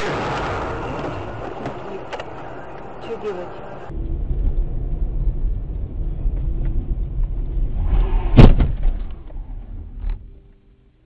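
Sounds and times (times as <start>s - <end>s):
loud collision impact: 0.0s - 2.8s, 3.9s - 10.0s
car road and engine rumble: 0.1s - 11.0s.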